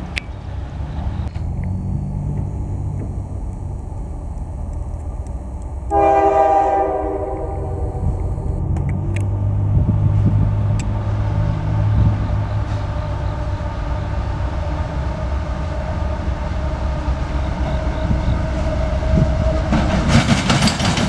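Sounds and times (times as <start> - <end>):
diesel engine rumble: 0.0 - 21.0
train air horn blast: 5.9 - 8.5.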